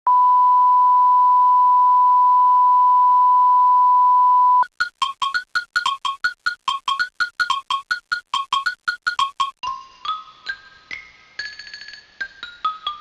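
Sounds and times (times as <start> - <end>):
steady test tone: 4.6 - 9.6.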